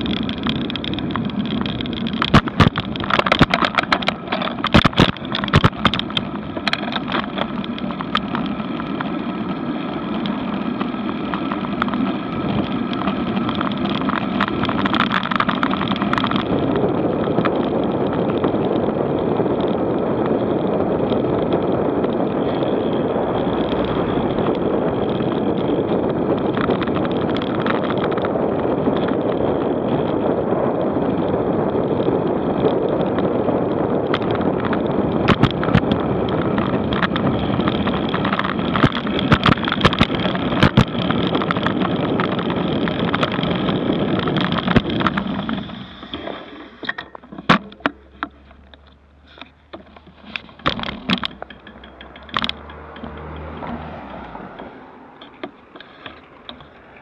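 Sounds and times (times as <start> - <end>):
bicycle tyres on paved road: 0.0 - 57.0
wind on camera microphone: 0.0 - 57.0
sharp rattling knocks: 34.1 - 56.8.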